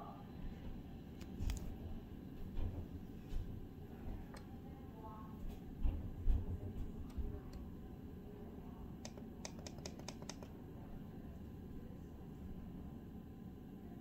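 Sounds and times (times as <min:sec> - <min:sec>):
wall switch buttons clicking: 0:09.0 - 0:10.5.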